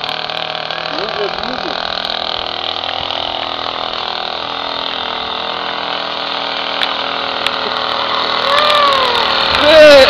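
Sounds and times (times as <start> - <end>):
moped engine running: 0.0 - 10.0.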